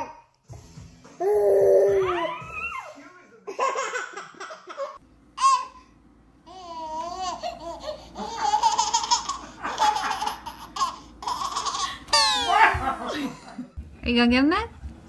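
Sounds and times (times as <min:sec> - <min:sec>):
baby laughing: 0:03.5 - 0:05.9, 0:06.5 - 0:13.2.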